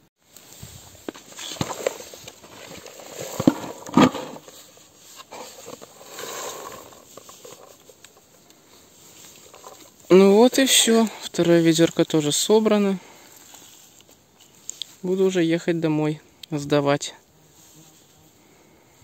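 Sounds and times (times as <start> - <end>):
berries rattling into bucket: 0.9 - 13.2.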